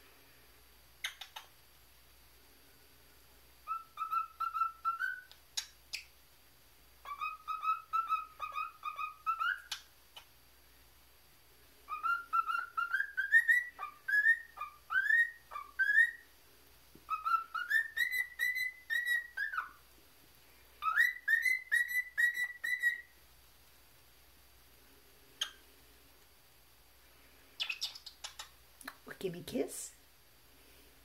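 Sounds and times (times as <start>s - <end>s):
cockatiel whistling a tune: 3.6s - 5.4s, 7.0s - 9.8s, 11.9s - 16.2s, 17.1s - 19.8s, 20.8s - 23.1s, 27.6s - 28.5s.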